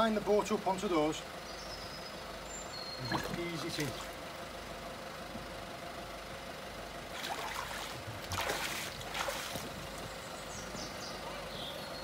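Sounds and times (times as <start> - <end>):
van engine idling: 0.0 - 12.0
water splashing against boat hull: 7.1 - 10.0.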